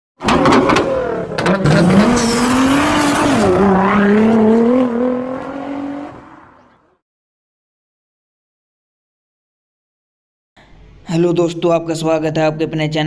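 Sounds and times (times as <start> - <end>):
sports car engine revving: 0.2 - 7.0
tyre squeal: 0.3 - 4.4.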